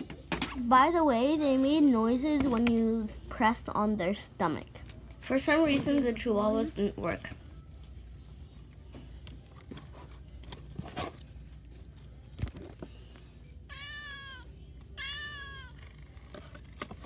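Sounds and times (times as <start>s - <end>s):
toy playing cat meow: 13.7s - 16.1s.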